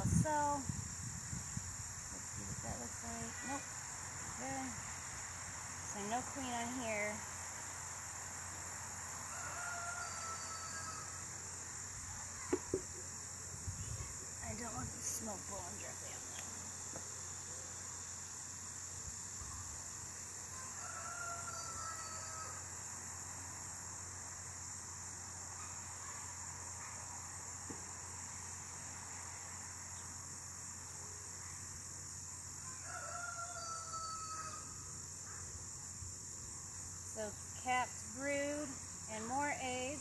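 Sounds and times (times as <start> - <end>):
cricket drone: 0.0 - 40.0
rooster crowing: 9.2 - 11.3, 20.5 - 22.8, 32.6 - 34.9.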